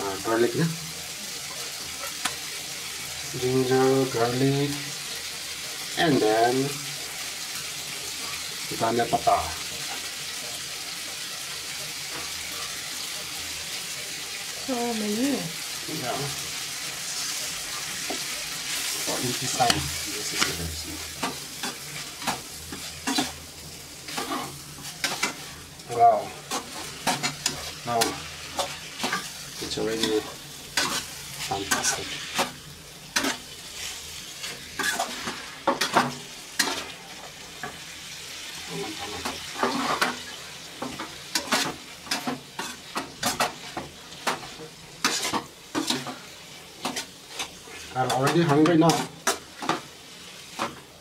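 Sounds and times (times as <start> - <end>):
food sizzling in a pan: 0.0 - 51.0
metal spatula scraping a pan: 16.4 - 37.9, 38.5 - 50.9.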